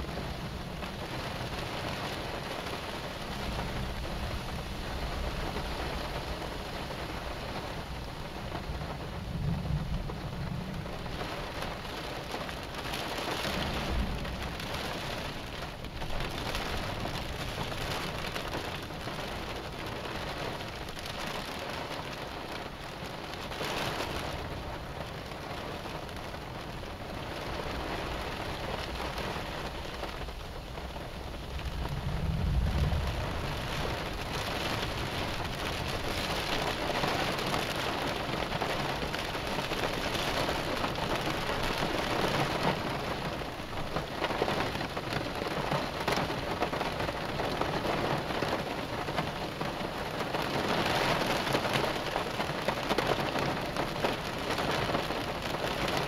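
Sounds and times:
thunder rumble: 0:00.0 - 0:21.2, 0:26.4 - 0:49.9
heavy rain on a car: 0:00.0 - 0:56.0.

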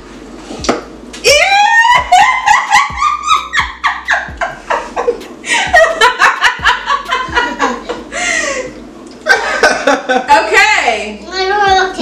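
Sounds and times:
people laughing: 0:01.8 - 0:08.6, 0:09.2 - 0:10.4.

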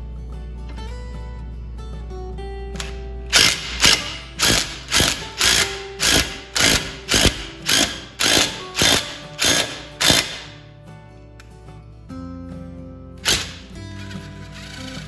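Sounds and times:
impact driver hammering: 0:02.8 - 0:10.6, 0:13.2 - 0:13.7.

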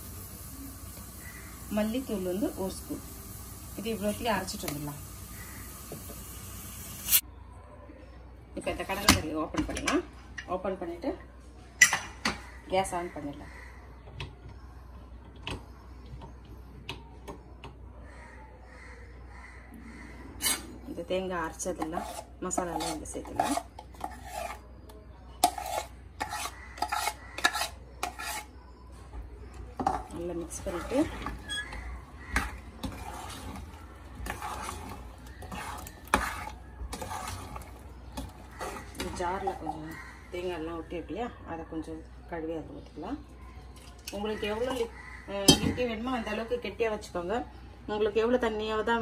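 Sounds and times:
spoon stirring in metal pot: 0:20.4 - 0:28.6, 0:29.4 - 0:40.7.

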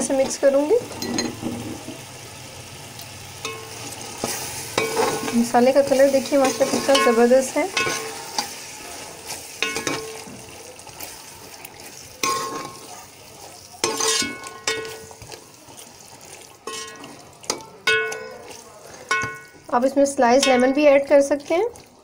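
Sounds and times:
metal spoon stirring in pot: 0:00.0 - 0:02.0, 0:03.4 - 0:22.0
chickpeas sizzling: 0:00.0 - 0:22.0
spoon knocking on metal pot: 0:13.9 - 0:15.1, 0:16.7 - 0:18.4, 0:19.1 - 0:19.6, 0:20.4 - 0:21.0.

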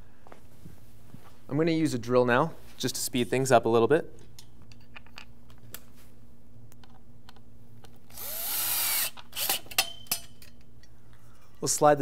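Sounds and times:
cordless drill whirring: 0:08.1 - 0:09.7.

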